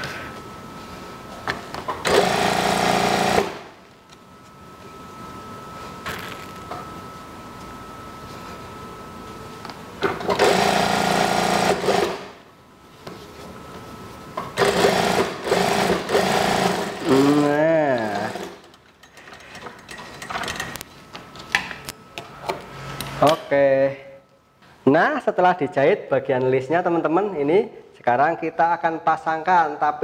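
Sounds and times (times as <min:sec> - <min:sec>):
sewing machine stitching: 0:10.2 - 0:12.2, 0:14.6 - 0:18.7.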